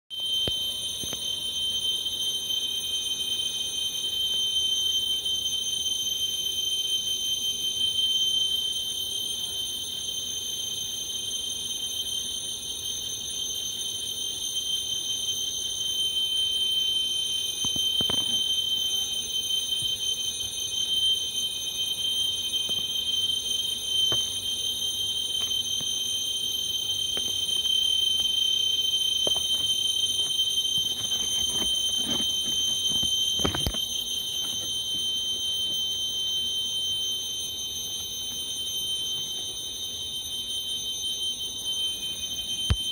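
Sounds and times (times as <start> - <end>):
cicadas singing: 0.2 - 42.9.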